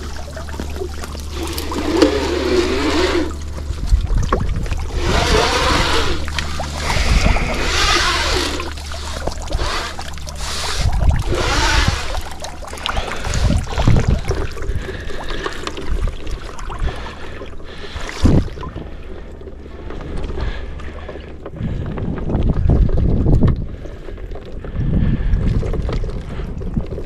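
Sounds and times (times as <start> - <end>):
wind rumbling on microphone: 0.0 - 19.0, 20.0 - 27.0
water splashing around a net: 0.0 - 19.1.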